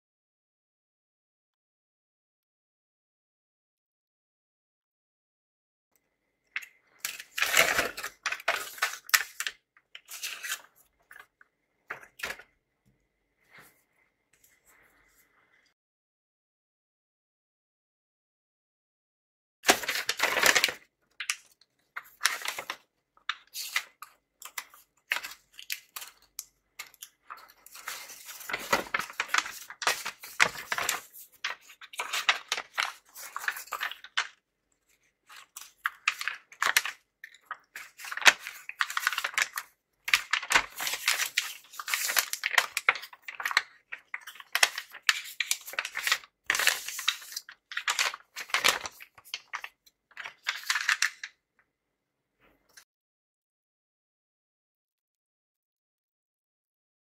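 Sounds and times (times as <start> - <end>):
paper bag rustling and crinkling: 6.9 - 11.3, 19.7 - 26.2, 26.8 - 34.4, 35.2 - 51.3.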